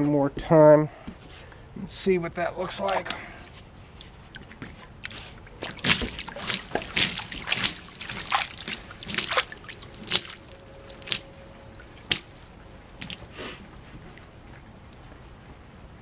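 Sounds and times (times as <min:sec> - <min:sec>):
water sloshing in plastic can: 0:02.8 - 0:13.7.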